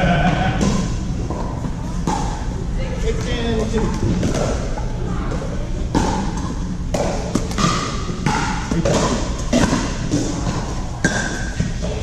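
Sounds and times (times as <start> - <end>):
paddles hitting plastic ball: 3.2 - 12.0.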